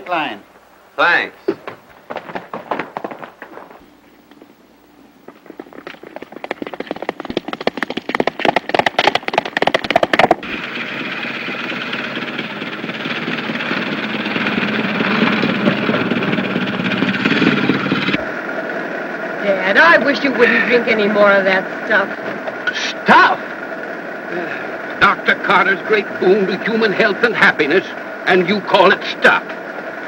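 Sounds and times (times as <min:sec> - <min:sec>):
horse hooves galloping on dirt: 0:01.5 - 0:04.5, 0:05.2 - 0:18.3
old truck engine rattling: 0:05.4 - 0:18.2.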